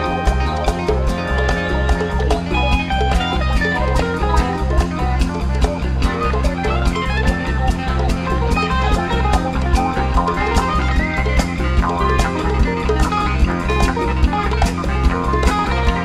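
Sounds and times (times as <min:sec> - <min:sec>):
bass guitar: 0:00.0 - 0:16.0
drum kit steady beat: 0:00.0 - 0:16.0
electric guitar lead: 0:00.0 - 0:16.0
keyboards: 0:00.0 - 0:16.0.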